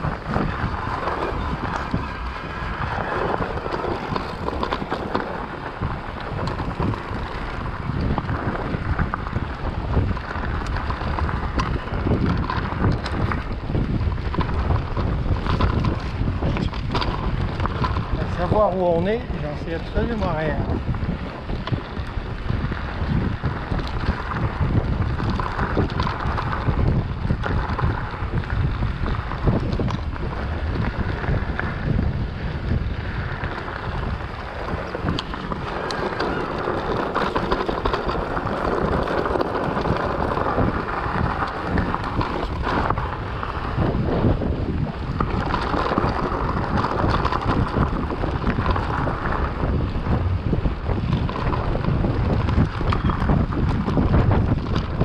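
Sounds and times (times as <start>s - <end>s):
bike clicks and knocks: 0.0s - 55.0s
tyres rolling on gravel: 0.0s - 55.0s
wind buffeting microphone: 0.0s - 55.0s.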